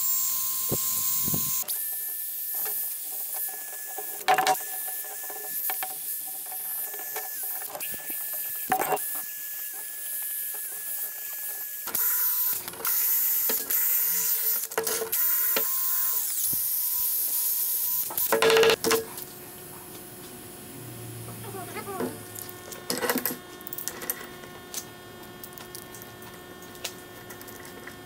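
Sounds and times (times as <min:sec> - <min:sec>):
drill motor whine: 0:00.0 - 0:18.8.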